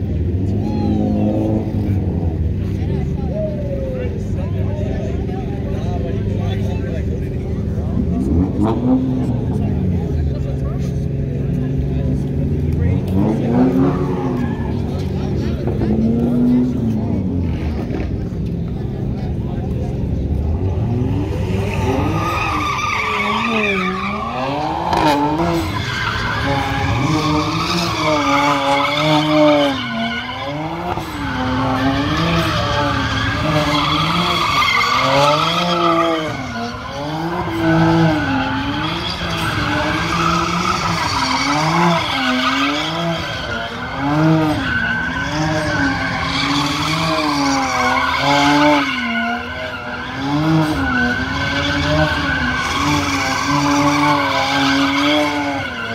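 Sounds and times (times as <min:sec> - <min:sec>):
car engine rising and falling: 0:00.0 - 0:55.9
tires squealing: 0:00.0 - 0:55.9.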